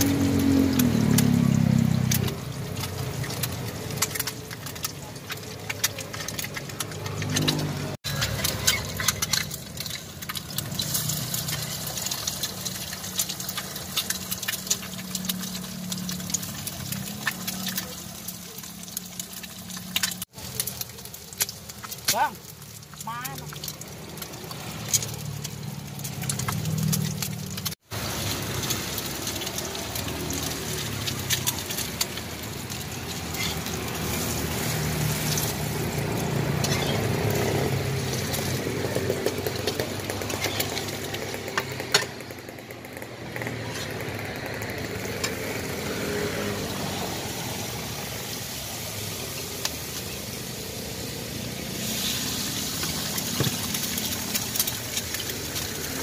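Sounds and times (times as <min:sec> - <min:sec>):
egg sizzling in oil: 0:00.0 - 0:56.0
metal spatula scraping and tapping: 0:04.0 - 0:11.0.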